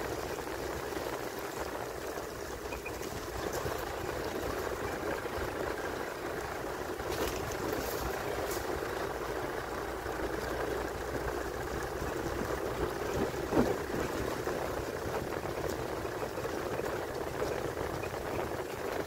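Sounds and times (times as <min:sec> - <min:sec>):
vehicle engine and road noise: 0:00.0 - 0:19.0.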